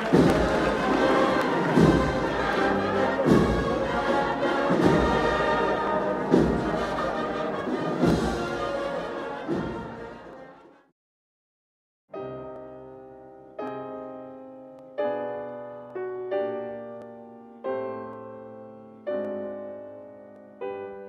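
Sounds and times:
bass drum beat: 0.0s - 7.2s
brass band slow march: 0.0s - 10.8s.

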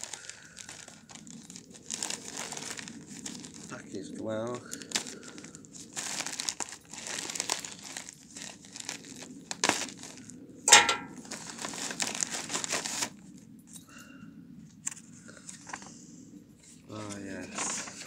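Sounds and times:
mailer bag crinkling: 0.0s - 3.7s, 4.7s - 10.2s, 11.1s - 13.1s.

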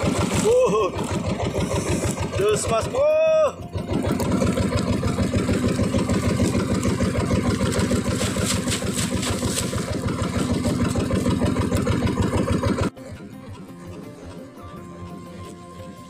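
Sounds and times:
water splashing: 0.0s - 2.8s, 3.9s - 12.8s
boat engine idling: 0.0s - 16.0s.

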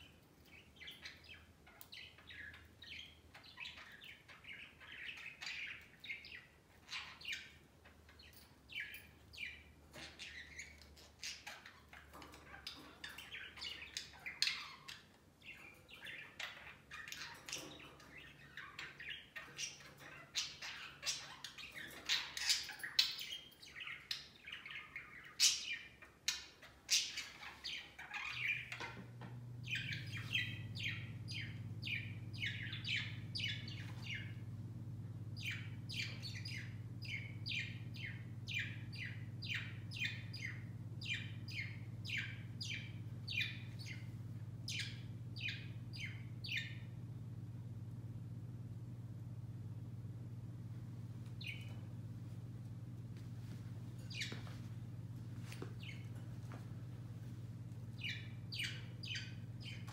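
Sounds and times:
steady low hum: 0.0s - 59.9s
budgerigars chattering: 35.4s - 46.9s, 58.0s - 59.9s.

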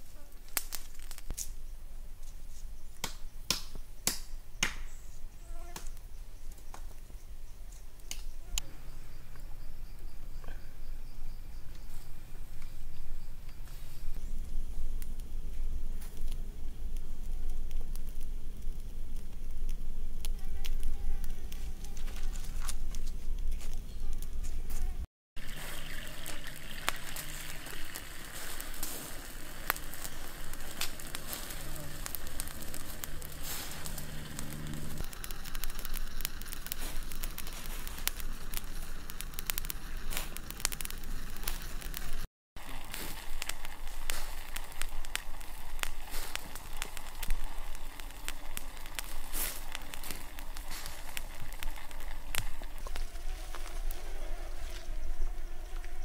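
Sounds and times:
wood fire crackling: 0.0s - 8.7s, 11.6s - 56.0s
fly buzzing: 28.4s - 38.1s
low rumble: 28.6s - 42.2s.

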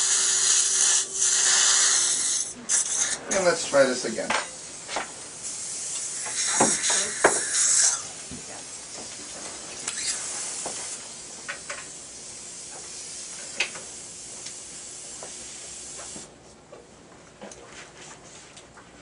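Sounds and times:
dental suction tube hissing: 0.0s - 3.9s, 4.5s - 9.2s, 9.8s - 16.3s.

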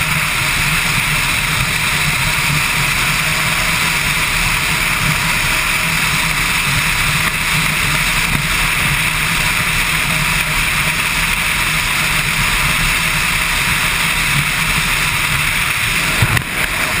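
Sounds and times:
motorcycle engine running: 0.0s - 17.0s
wind rush: 12.3s - 17.0s.

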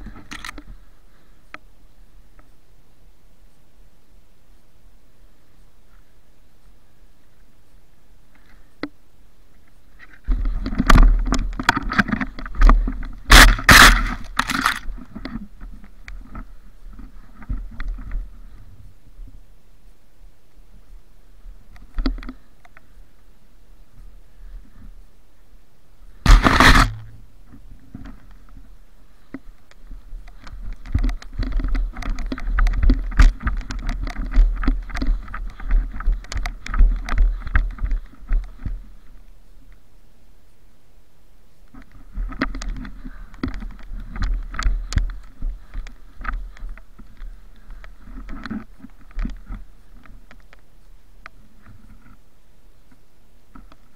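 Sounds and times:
loud scraping bursts: 13.3s - 14.8s, 26.2s - 27.2s
crunching through deep snow: 26.2s - 27.2s.

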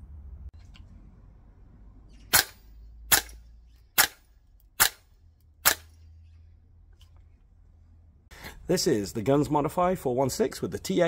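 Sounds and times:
airsoft rifle shots: 2.3s - 6.0s.

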